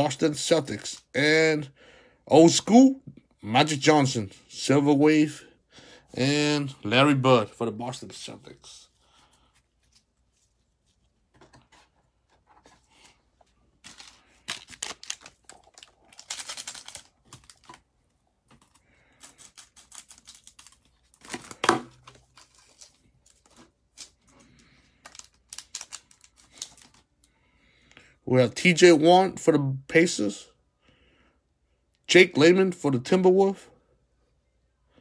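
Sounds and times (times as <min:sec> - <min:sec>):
wrapper crinkling and tearing: 0:13.8 - 0:17.8, 0:18.6 - 0:24.2, 0:24.9 - 0:27.1.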